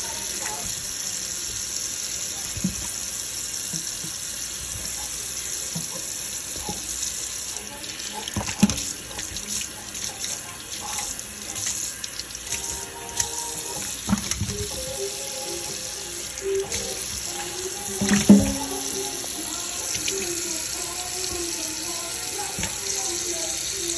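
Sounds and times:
tap running into sink: 5.6 - 6.9, 8.2 - 23.9.

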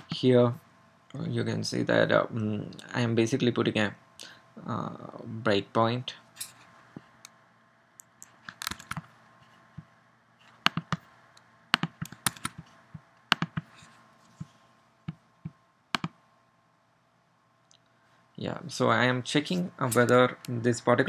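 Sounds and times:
faint steady hum: 0.0 - 21.0
mouse and keyboard clicks: 8.0 - 9.1, 10.4 - 11.0, 11.8 - 12.7, 13.3 - 13.8, 16.0 - 16.2.

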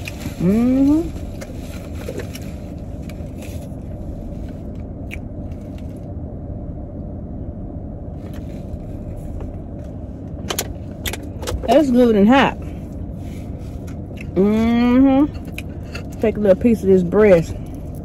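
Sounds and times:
car running rumble: 0.0 - 18.0
woman humming: 0.4 - 1.2, 14.3 - 15.4.

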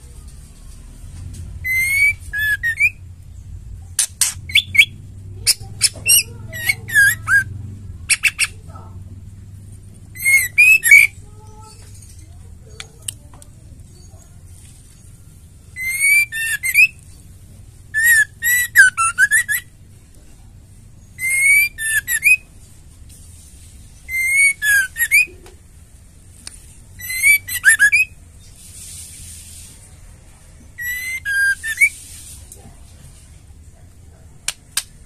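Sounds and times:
bird singing whistled notes: 1.6 - 3.1, 4.2 - 7.5, 10.2 - 12.1, 15.7 - 17.0, 17.9 - 19.7, 21.0 - 22.4, 24.1 - 25.4, 27.0 - 28.2, 30.8 - 32.0.

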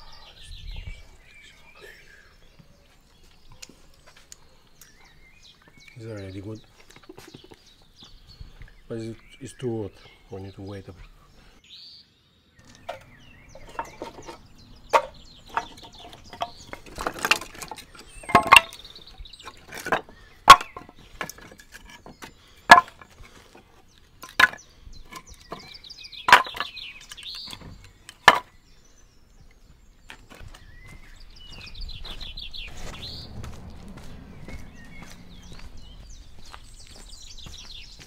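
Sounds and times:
firewood pieces clacking: 12.6 - 28.6.

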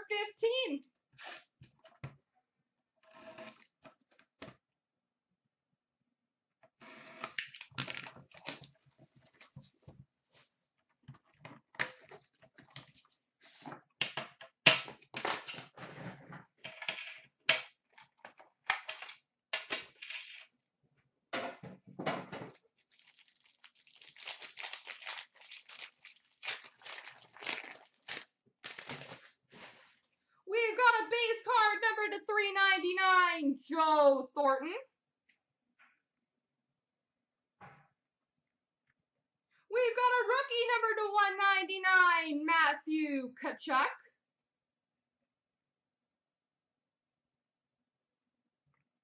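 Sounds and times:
packaging tearing: 7.4 - 8.7, 22.8 - 29.3
wrapper crinkling: 7.4 - 8.7, 22.5 - 29.4
paper and cardboard rustling: 22.5 - 30.0.

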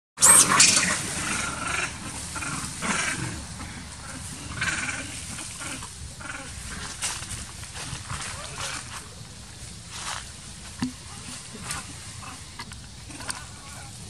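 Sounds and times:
monkeys screaming: 0.2 - 7.2.

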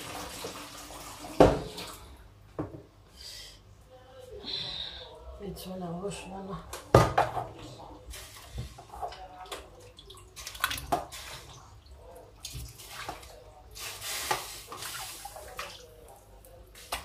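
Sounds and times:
water sloshing in a bowl: 7.6 - 17.0.

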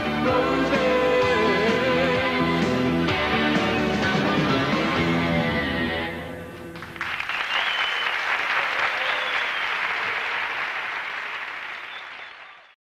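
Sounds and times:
audience applause: 6.8 - 12.8.

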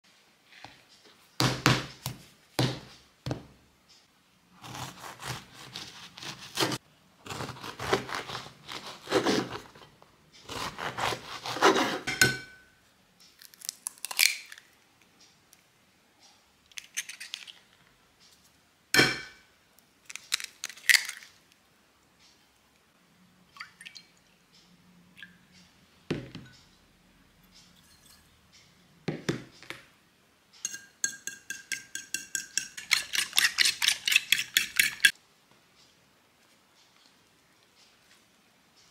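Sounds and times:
knife sawing through bread: 4.6 - 9.7, 10.5 - 12.1
dishes clinking: 12.1 - 12.7, 19.0 - 19.4, 30.6 - 35.1.

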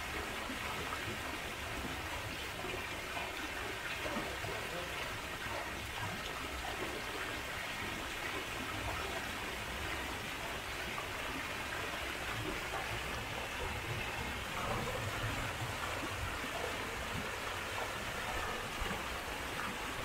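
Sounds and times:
running water rushing: 0.0 - 20.0.

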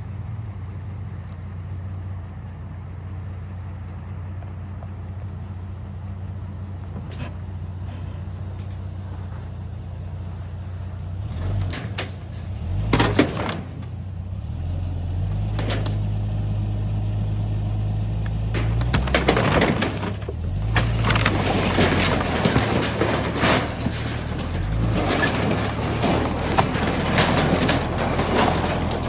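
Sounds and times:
debris cracking and clattering: 11.2 - 14.1, 15.4 - 16.1, 18.3 - 29.0.

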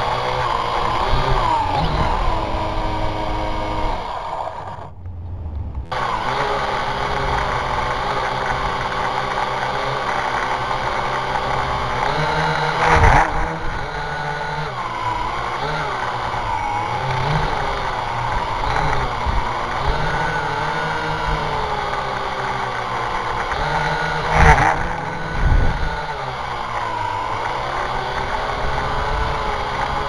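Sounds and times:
drone motors and propellers whining: 0.0 - 30.0
loud rush of noise: 4.2 - 7.8.

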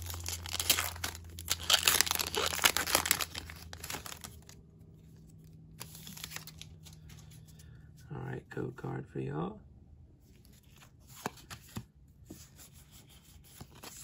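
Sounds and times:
foil wrapper crinkling and tearing: 0.0 - 4.6, 5.3 - 7.0
cards being handled: 0.0 - 7.8, 10.3 - 14.0.

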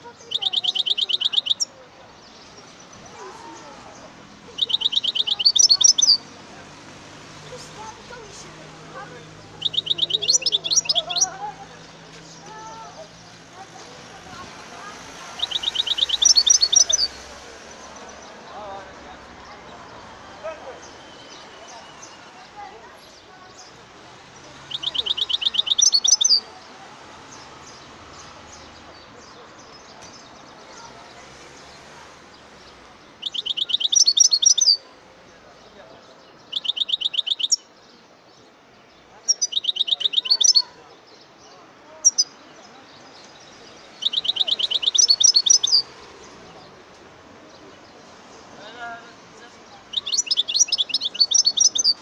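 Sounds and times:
faint bird chirps: 0.1 - 3.9, 4.6 - 6.3, 9.5 - 11.6, 15.3 - 17.3, 24.6 - 26.5, 33.2 - 34.9, 36.4 - 38.5, 39.2 - 40.8, 41.9 - 45.9, 49.9 - 52.0
bird singing quick repeated notes: 0.2 - 3.2, 3.9 - 6.4, 9.3 - 13.1, 15.3 - 18.3, 24.5 - 26.5, 32.6 - 34.8, 36.2 - 38.4, 39.2 - 40.8, 43.2 - 46.6, 49.9 - 52.0.

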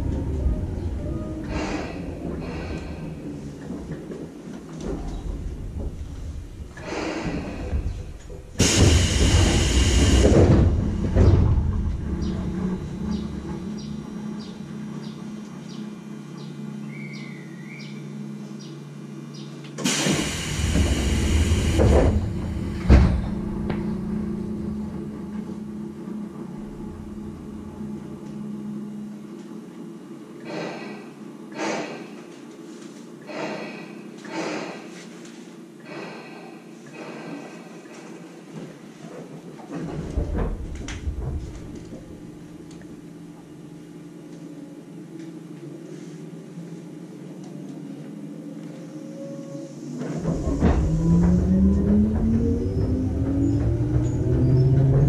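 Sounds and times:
train equipment hum: 0.0 - 55.0
pneumatic doors rush of air: 0.6 - 3.6, 6.0 - 12.4, 19.8 - 24.4, 30.4 - 32.2, 33.3 - 35.0, 35.8 - 38.3, 49.5 - 55.0
train doors thudding shut: 6.8 - 14.0, 19.8 - 25.1, 50.0 - 55.0.

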